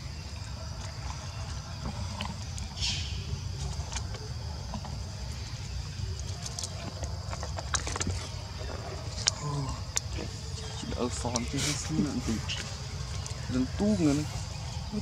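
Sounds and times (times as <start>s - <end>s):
high insect drone: 0.0s - 15.0s.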